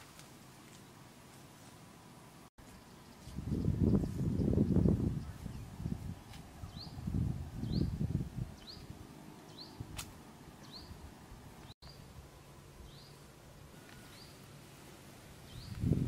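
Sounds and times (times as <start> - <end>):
footsteps rustling through grass: 0.0 - 2.0, 2.6 - 6.6.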